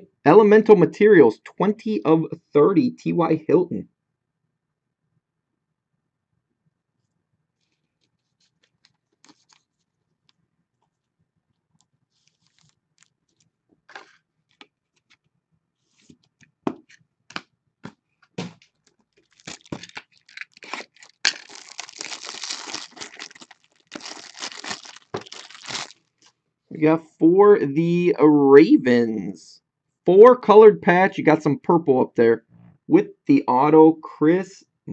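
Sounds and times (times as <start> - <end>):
soft clicks and rustles: 7.0 - 15.4
plastic crinkling and tearing: 7.6 - 9.9, 12.2 - 15.2, 18.7 - 26.3.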